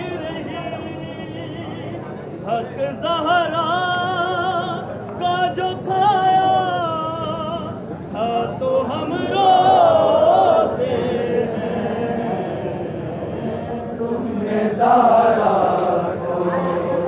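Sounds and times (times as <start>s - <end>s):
man singing a mourning lament: 0.0s - 13.3s.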